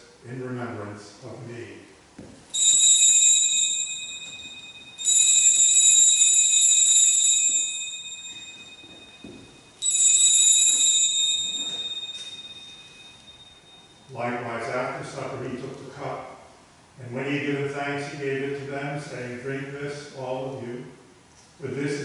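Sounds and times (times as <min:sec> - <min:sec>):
altar bell ringing: 0:02.5 - 0:14.4.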